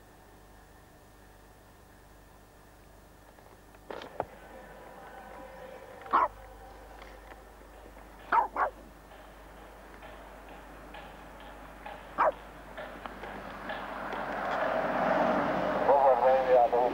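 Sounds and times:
small dog yipping: 0:06.1 - 0:06.4, 0:08.3 - 0:08.8, 0:12.2 - 0:12.4.

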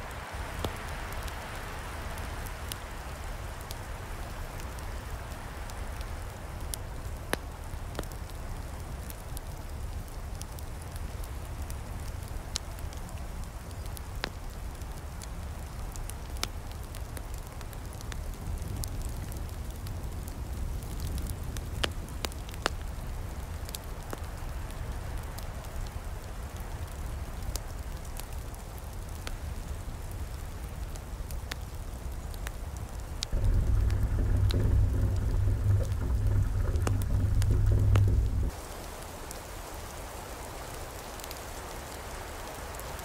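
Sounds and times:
campfire crackling and popping: 0:00.0 - 0:43.0
steady low rumble: 0:32.8 - 0:38.6.

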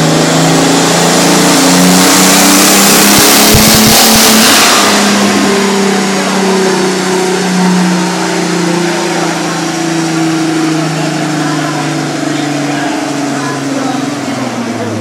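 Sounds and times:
turbocharged engine revving hard: 0:00.0 - 0:15.0
low thumps: 0:03.0 - 0:07.4.

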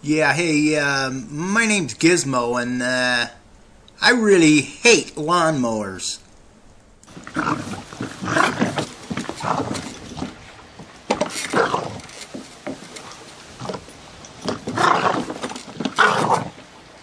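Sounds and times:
small dog growling and snarling: 0:07.1 - 0:10.3, 0:11.5 - 0:12.1, 0:14.5 - 0:16.6.

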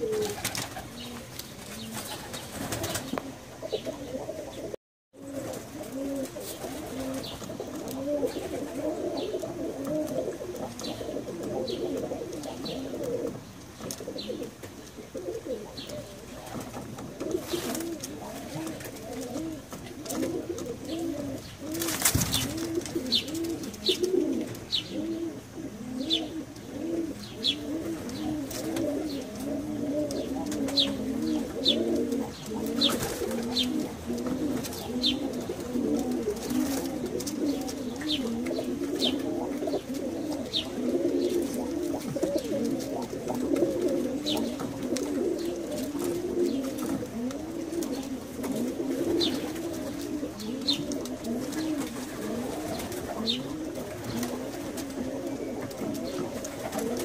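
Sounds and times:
pigeons cooing: 0:00.0 - 0:57.0.

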